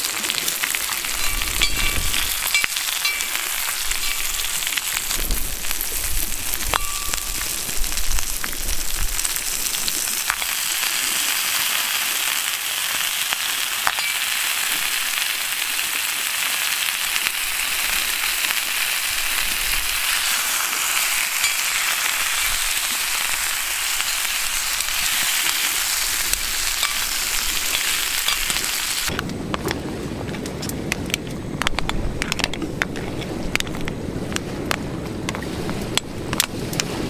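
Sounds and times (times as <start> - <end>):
food sizzling in iron pan: 0.0 - 29.1.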